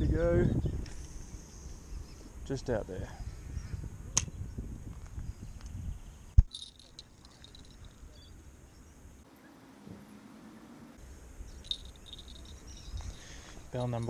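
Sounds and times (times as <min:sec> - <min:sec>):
small bells jingling: 0:06.5 - 0:08.2, 0:11.6 - 0:14.0.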